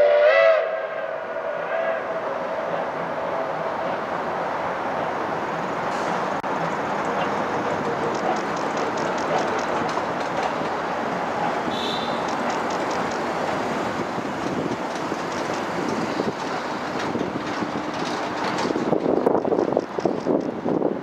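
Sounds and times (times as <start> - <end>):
steam train rumbling over bridge: 0.0 - 21.0
rhythmic wheel clatter: 6.4 - 20.6.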